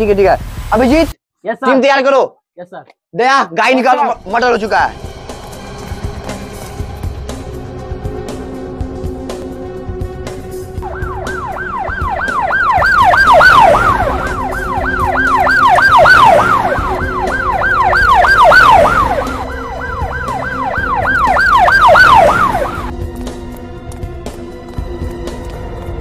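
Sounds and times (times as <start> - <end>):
siren yelping: 10.8 - 22.9.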